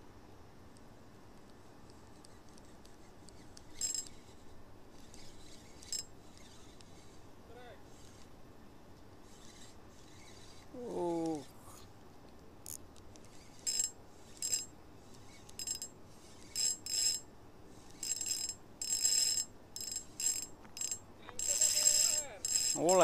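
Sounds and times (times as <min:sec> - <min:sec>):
fishing reel whirring: 0:03.4 - 0:07.3, 0:07.9 - 0:08.3, 0:09.2 - 0:11.5, 0:12.6 - 0:23.0.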